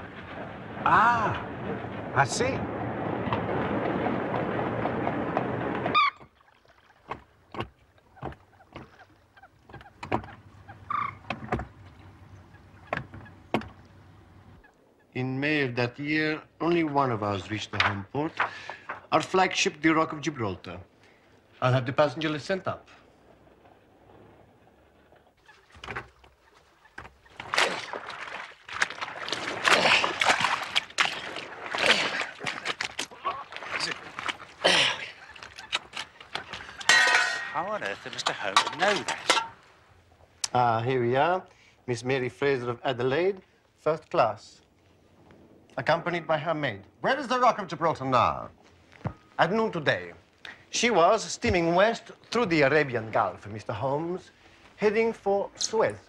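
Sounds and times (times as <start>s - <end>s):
oars splashing in water: 0.0s - 14.6s, 23.2s - 40.5s
oars knocking in rowlocks: 4.2s - 14.5s.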